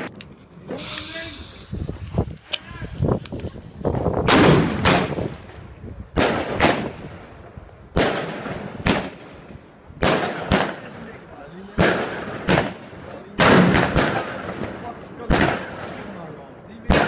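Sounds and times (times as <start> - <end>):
firework shots banging: 4.2 - 5.6, 6.2 - 7.3, 7.9 - 16.3.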